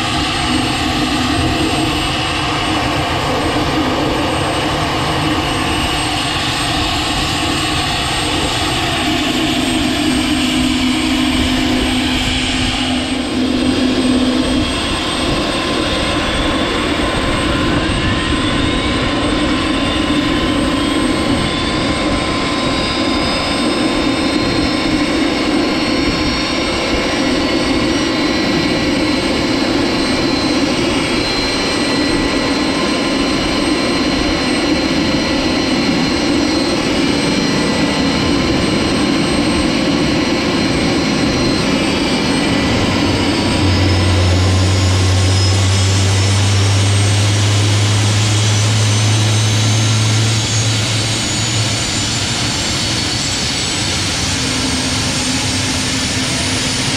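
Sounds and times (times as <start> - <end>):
engine whine rising in pitch: 0.0 - 56.9
helicopter engines roaring: 0.0 - 56.9.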